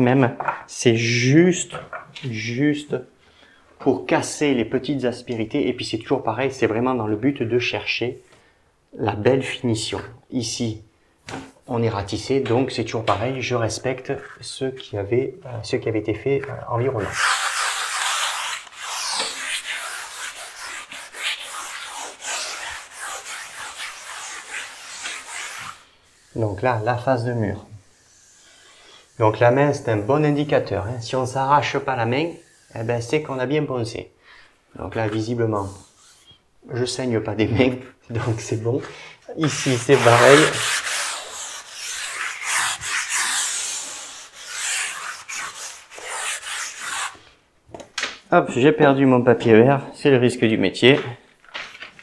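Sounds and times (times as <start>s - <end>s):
palms sweeping over wall: 16.9s - 33.5s, 38.1s - 47.3s
sandpaper rubbing on wall: 17.0s - 30.7s, 31.9s - 33.4s, 35.6s - 36.3s, 39.4s - 47.2s.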